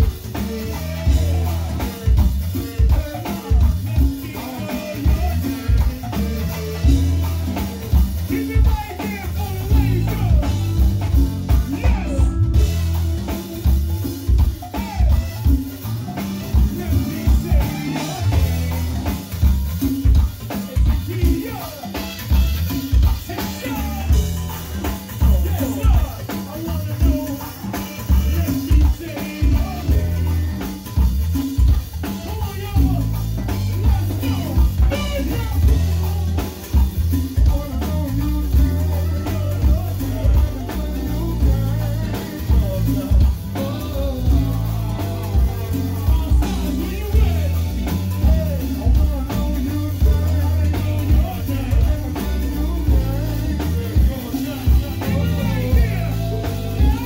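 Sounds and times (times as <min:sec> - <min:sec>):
bass and drum groove: 0:00.0 - 0:57.0
electric guitar: 0:00.0 - 0:57.0
hand percussion: 0:00.0 - 0:57.0
people singing: 0:00.0 - 0:57.0.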